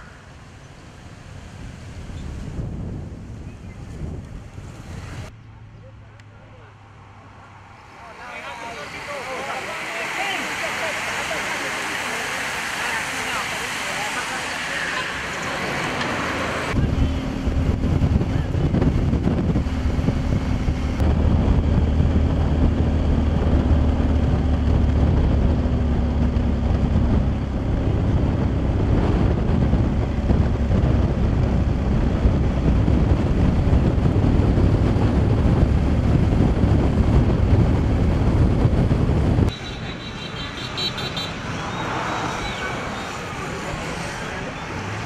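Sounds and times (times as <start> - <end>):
wind rushing over microphone: 0.0 - 5.4, 11.9 - 45.0
vehicle engine rumble: 0.0 - 45.0.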